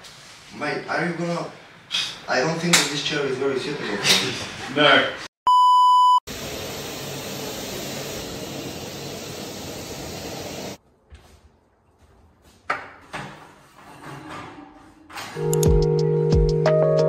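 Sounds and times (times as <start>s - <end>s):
high beep tone: 5.5s - 6.2s.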